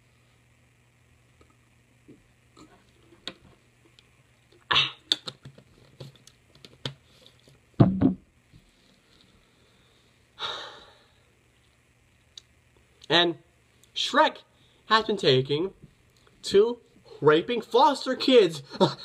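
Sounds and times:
breathy exhale: 9.2 - 11.3
person gasping: 10.4 - 11.2.

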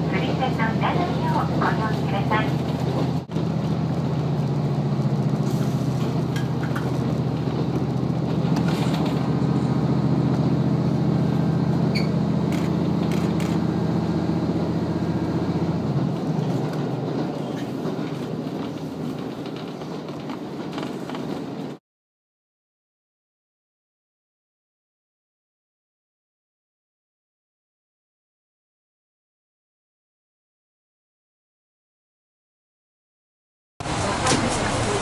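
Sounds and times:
railcar engine drone: 0.0 - 21.8
train wheels rolling: 1.3 - 21.8.

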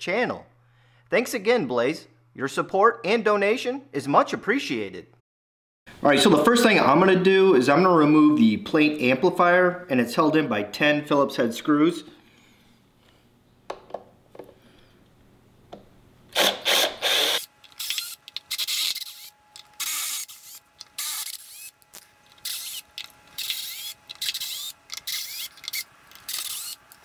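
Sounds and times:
cordless drill driving screws: 16.3 - 27.0.

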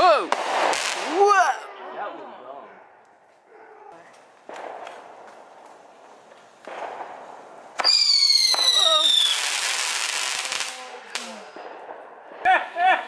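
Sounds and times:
firework crack: 0.0 - 1.6, 4.1 - 13.0
hissing crackling firework spray: 6.0 - 11.7
firework whistle: 7.8 - 10.8.

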